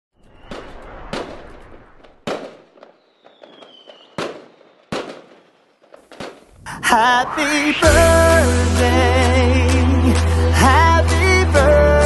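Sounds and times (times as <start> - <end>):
falling firework whistle: 0.2 - 5.6
fireworks bangs with crackle: 0.2 - 8.5.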